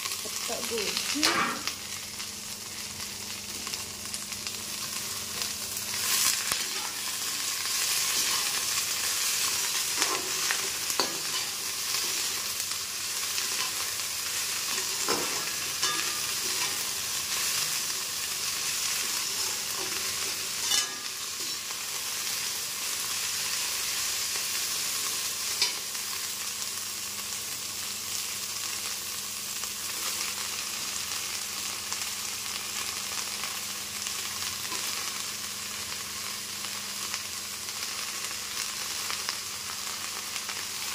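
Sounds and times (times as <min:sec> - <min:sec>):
vegetables sizzling in a pan: 0:00.0 - 0:40.9
spatula scraping a pan: 0:20.6 - 0:21.6.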